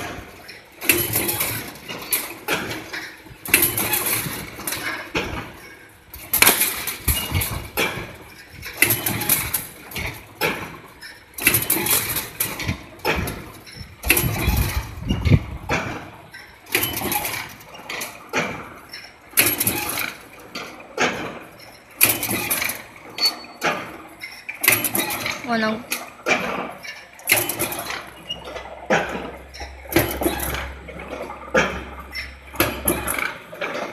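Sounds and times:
quiet machine noise: 0.0s - 33.9s
welding machine clatter: 0.0s - 33.9s.

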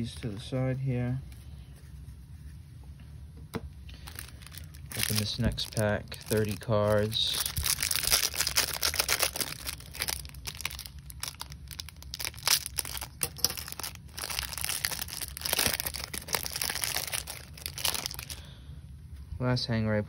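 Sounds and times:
plastic wrapper crinkling and tearing: 3.9s - 18.5s.

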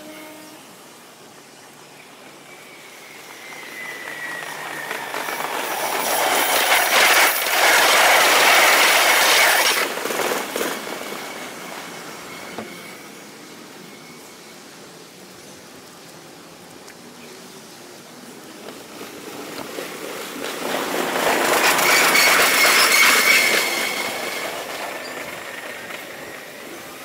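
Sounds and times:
electric train passing: 0.0s - 15.8s, 17.7s - 27.0s
faint high thin whine: 11.2s - 14.7s.

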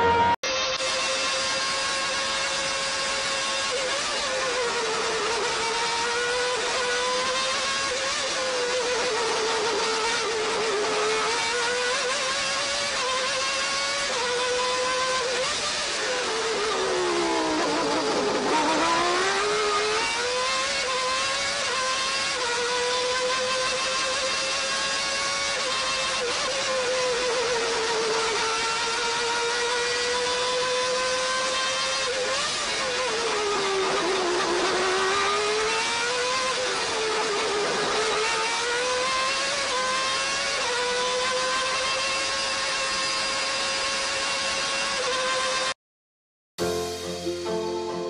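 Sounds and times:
racing car engine revving: 0.0s - 45.8s.

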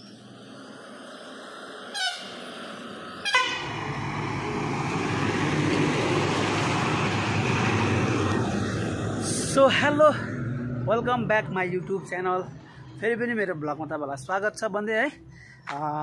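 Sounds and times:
heavy diesel truck engines: 0.0s - 16.0s
truck horn blasts: 1.9s - 2.4s, 3.2s - 3.8s.

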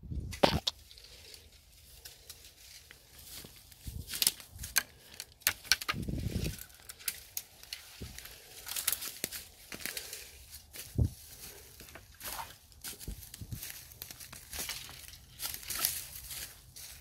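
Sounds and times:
footsteps crunching dry leaves: 0.7s - 5.2s, 6.1s - 17.0s
brittle stalks snapping: 3.3s - 10.3s, 11.8s - 17.0s.

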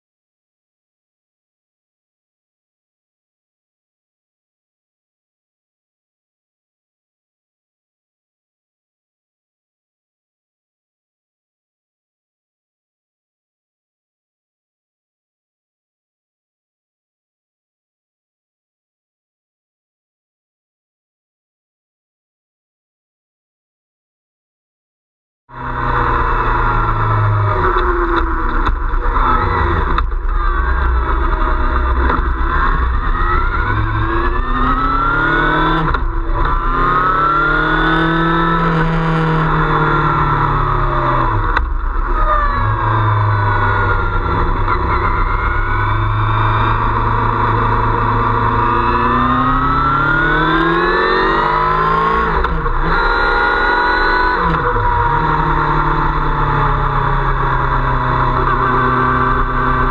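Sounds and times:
motorcycle engine running: 25.5s - 50.1s
road noise: 25.5s - 59.9s.

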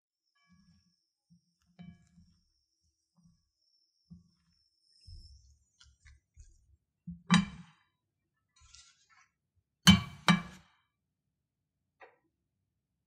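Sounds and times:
spoon scraping bowl: 8.6s - 9.4s.

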